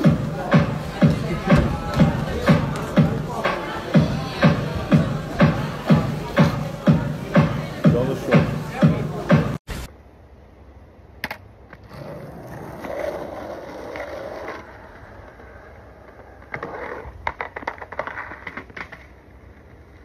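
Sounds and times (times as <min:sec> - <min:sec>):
skateboard wheels rolling on concrete: 0:00.0 - 0:09.3, 0:11.2 - 0:20.0
skateboard clacking on ground: 0:11.2 - 0:20.0.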